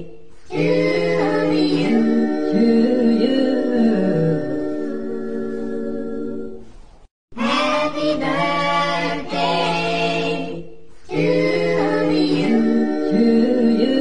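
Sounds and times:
a cappella singing: 0.0s - 6.7s, 7.4s - 14.0s.

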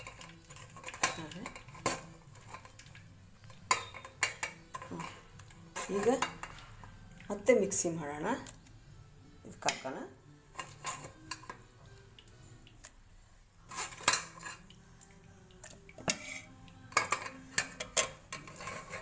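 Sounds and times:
spoon scraping metal strainer: 0.0s - 7.5s, 10.5s - 11.7s, 13.6s - 14.8s, 15.6s - 19.0s.

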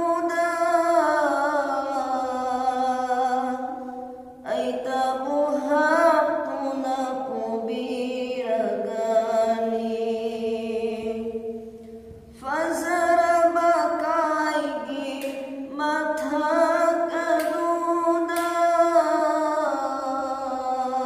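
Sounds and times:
man singing devotional song: 4.5s - 11.5s, 12.4s - 21.0s.

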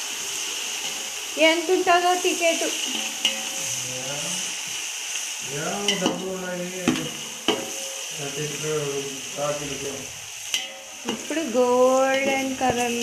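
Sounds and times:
onions sizzling in oil: 0.0s - 13.0s
spoon knocking against pot: 6.8s - 7.8s.

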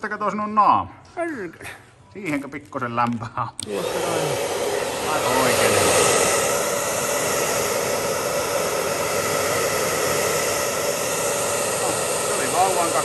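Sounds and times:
hair dryer running: 3.6s - 13.0s.

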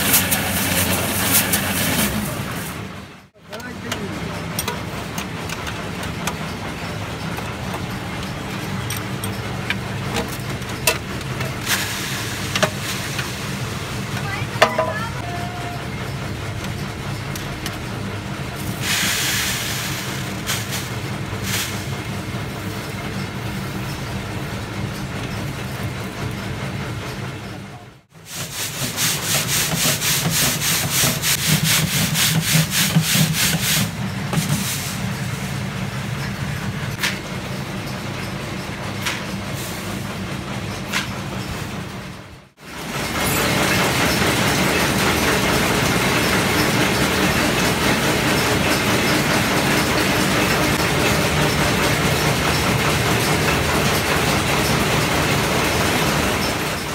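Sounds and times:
rotating drum motor hum: 19.8s - 56.9s.

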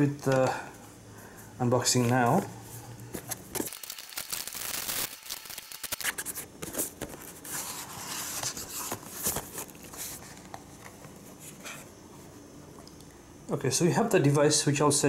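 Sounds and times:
plastic shrink-wrap crinkling: 3.6s - 6.9s
cardboard tearing and rustling: 3.6s - 10.4s.

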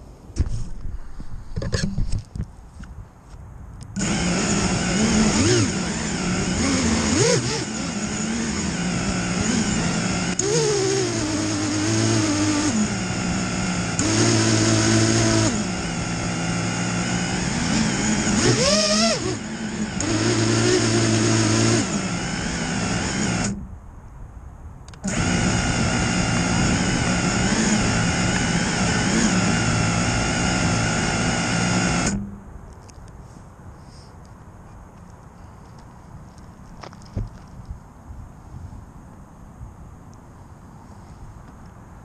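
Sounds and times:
drone motors whining: 4.0s - 23.7s, 24.9s - 32.4s.

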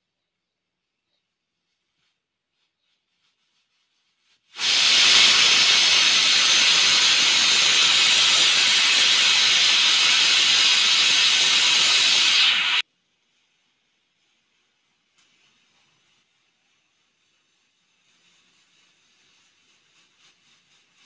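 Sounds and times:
loud steady hiss: 4.6s - 12.8s.

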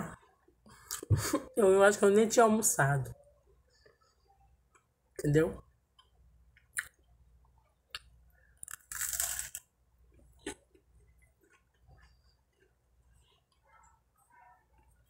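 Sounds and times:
quiet chewing: 7.7s - 15.0s
crunchy bite of bread: 8.0s - 9.6s.

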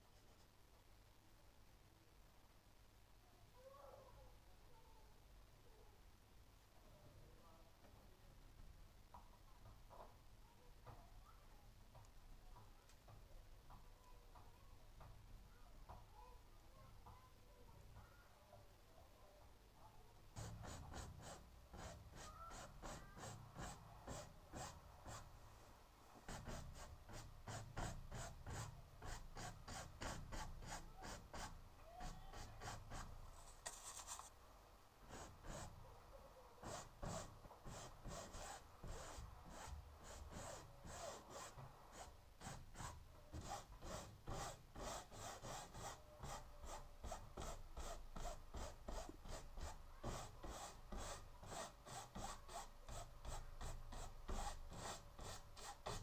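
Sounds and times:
paintbrush brushing on canvas: 20.4s - 25.3s, 26.2s - 34.4s, 35.1s - 35.8s, 36.6s - 56.0s.

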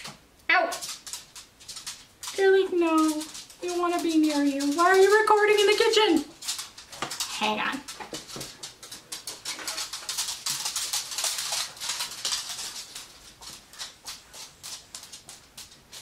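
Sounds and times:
dog toenails clicking on hard floor: 0.0s - 16.0s.

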